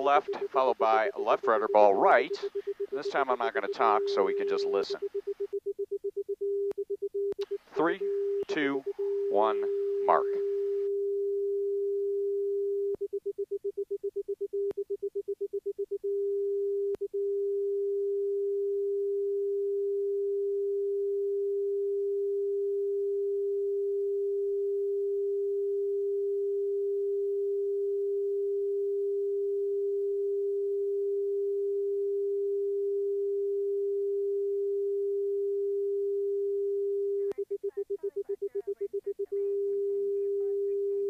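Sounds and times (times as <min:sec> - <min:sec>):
steady synthesized tone: 0:00.0 - 0:05.6, 0:07.4 - 0:10.8.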